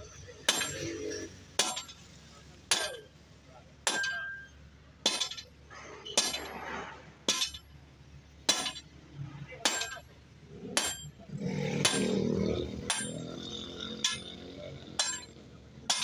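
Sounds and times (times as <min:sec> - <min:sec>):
hammer striking metal on anvil: 0:00.5 - 0:00.9, 0:01.6 - 0:02.0, 0:02.7 - 0:03.1, 0:03.8 - 0:05.5, 0:06.1 - 0:06.6, 0:07.3 - 0:07.7, 0:08.5 - 0:08.9, 0:09.6 - 0:10.1, 0:10.8 - 0:11.2, 0:11.8 - 0:12.2, 0:12.8 - 0:14.4, 0:15.0 - 0:16.0.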